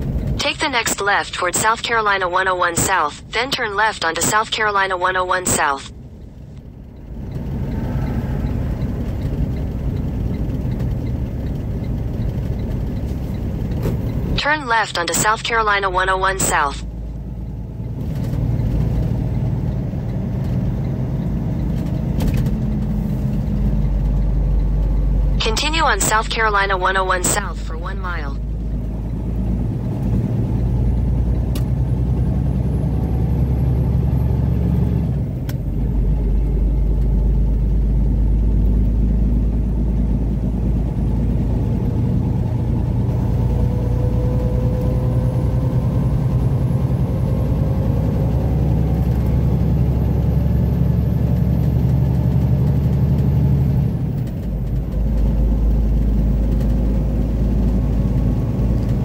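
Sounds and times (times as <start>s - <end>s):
faint whine: 0.0s - 17.0s, 25.0s - 28.8s
vehicle engine and road drone: 0.0s - 59.0s.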